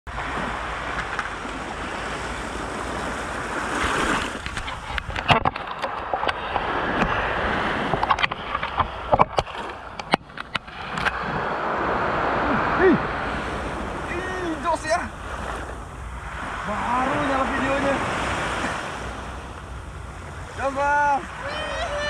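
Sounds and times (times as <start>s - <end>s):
waves washing against seawall: 0.1s - 22.0s
wind: 0.1s - 22.0s
camera handling knocks and clicks: 7.9s - 11.2s.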